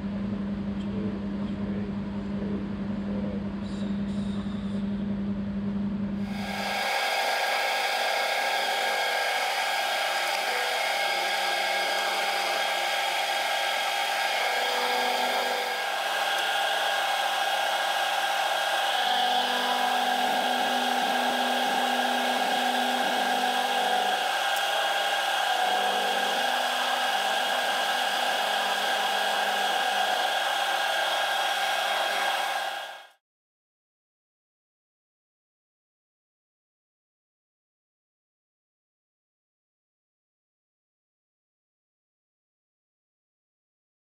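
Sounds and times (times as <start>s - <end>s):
low hum: 6.3s - 32.8s
milling machine whine: 6.3s - 33.1s.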